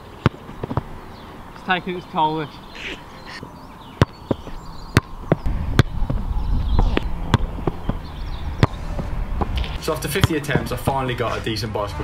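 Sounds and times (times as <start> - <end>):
ball being kicked: 0.2 - 0.9, 6.8 - 8.0
low rumble: 5.4 - 10.8.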